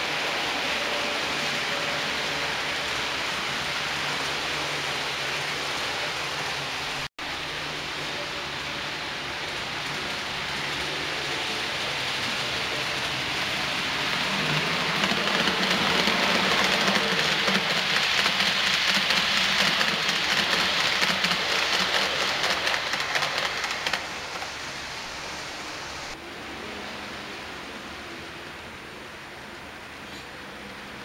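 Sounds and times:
model train wheels on track: 0:00.0 - 0:31.0.

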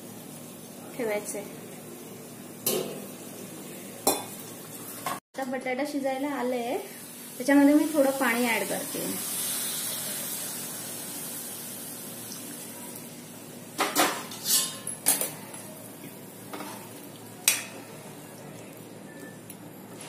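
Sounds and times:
water hissing in a hot pan: 0:06.4 - 0:13.7.

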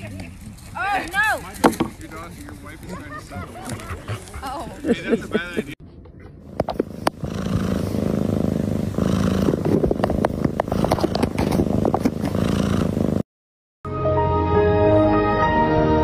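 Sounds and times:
cat purring loudly: 0:06.6 - 0:13.2.

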